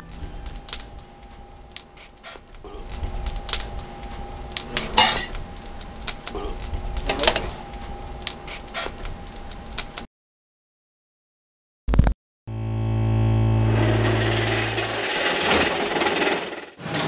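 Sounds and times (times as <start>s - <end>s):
faint steady hum: 0.0s - 9.9s.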